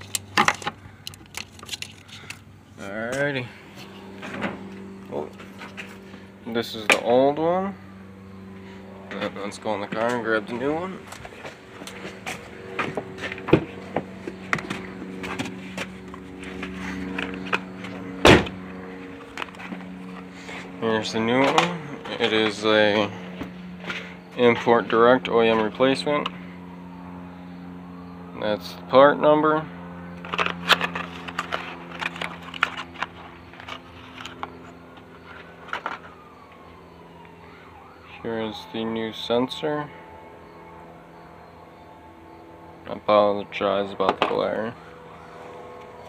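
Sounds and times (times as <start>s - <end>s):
small handling clicks: 0.0s - 2.4s
low hum: 0.0s - 38.2s
car door thumping shut: 18.2s - 18.6s
cardboard packaging clicks and crinkles: 30.2s - 34.6s.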